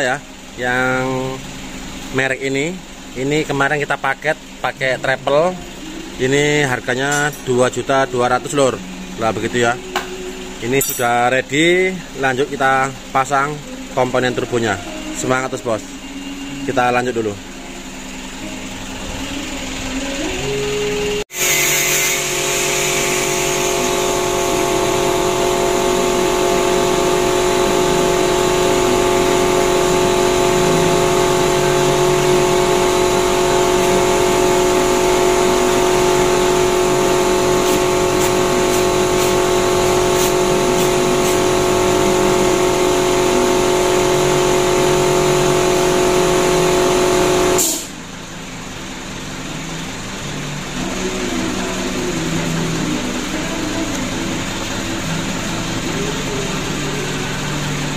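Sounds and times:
engine humming: 23.3 - 57.9.

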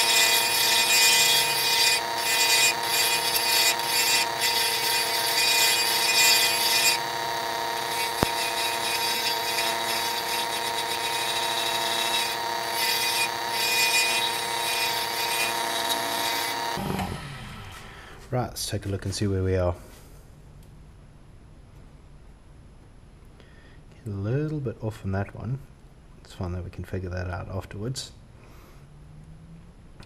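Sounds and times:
wood lathe motor whine: 0.0 - 17.9
turning tool scraping wood: 0.0 - 19.2.

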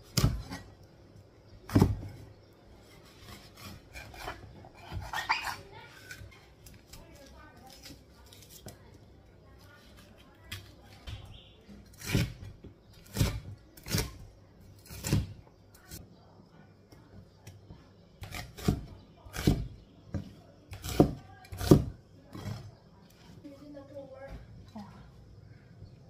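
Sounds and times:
cleaver chopping on wooden board: 18.2 - 22.6.

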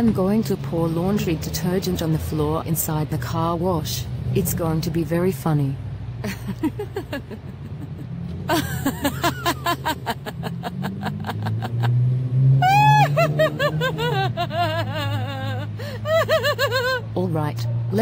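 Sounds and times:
woman giggling and laughing: 6.2 - 17.2.

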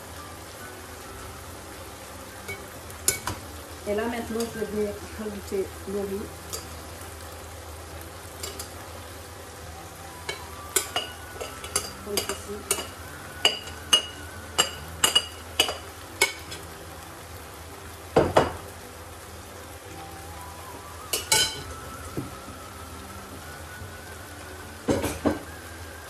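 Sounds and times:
faint sizzle of frying pan: 0.0 - 26.0
spoon knocking on pan: 2.5 - 3.4, 10.3 - 16.6, 18.2 - 18.6, 24.9 - 25.5
metal spoon clinking on glass bowl: 10.3 - 16.4.

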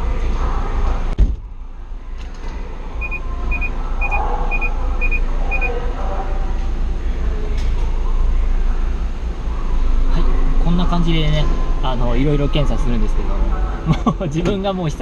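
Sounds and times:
low rumble from hall: 0.0 - 14.3
short electronic double beeps: 3.0 - 5.7.

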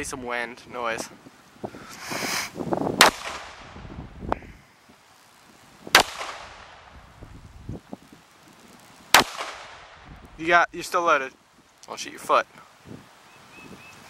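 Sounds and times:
gunshots: 3.0 - 3.8, 5.9 - 6.8, 9.1 - 10.0.

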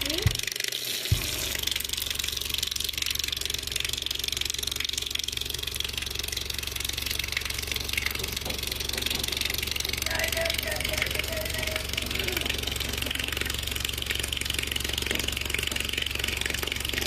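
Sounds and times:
low buzzing hum from loudspeaker: 9.9 - 13.0.

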